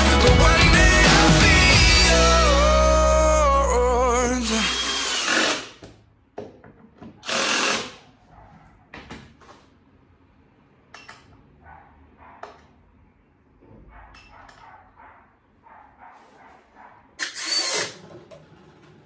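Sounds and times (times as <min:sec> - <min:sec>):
cordless drill driving screws: 0:04.5 - 0:05.8, 0:07.2 - 0:08.0, 0:17.2 - 0:18.1.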